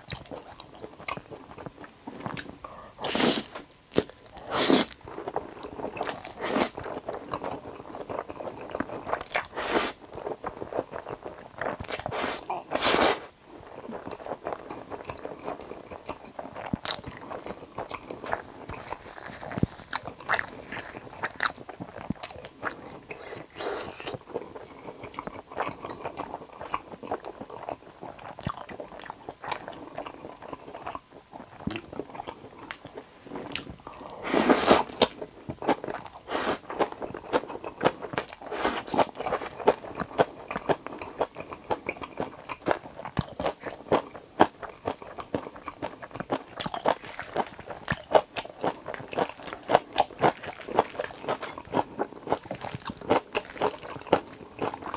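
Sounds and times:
wet chewing with crunching: 0.0s - 54.9s
noodle slurp: 4.4s - 4.9s, 9.5s - 10.0s, 34.2s - 35.0s.

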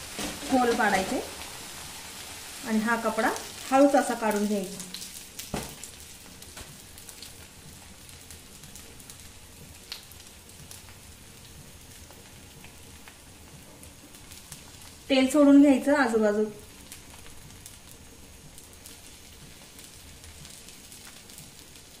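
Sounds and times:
dough sizzling on hot griddle: 0.0s - 22.0s
small crackles and pops: 3.2s - 15.1s, 16.5s - 22.0s.

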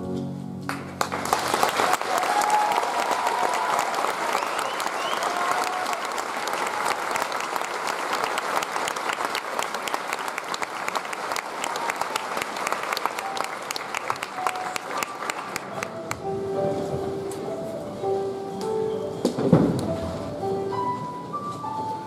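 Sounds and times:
crowd clapping: 0.7s - 16.3s.

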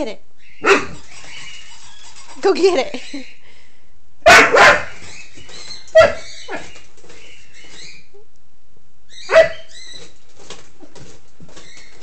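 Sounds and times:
puppy barking: 0.6s - 1.0s, 4.2s - 5.0s, 5.9s - 6.7s, 9.3s - 9.7s.

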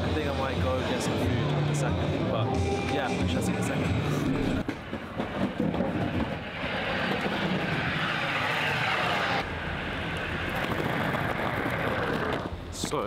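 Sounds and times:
rushing engine noise: 0.0s - 12.7s.

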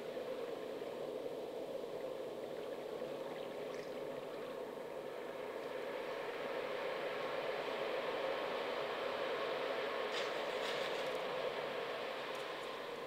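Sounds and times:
steady coastline noise: 0.0s - 13.0s.

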